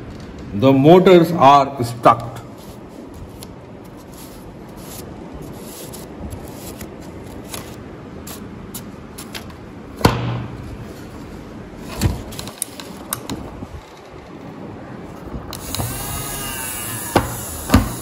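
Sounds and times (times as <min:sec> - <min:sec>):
paper and wood rubbing: 0:02.6 - 0:08.4.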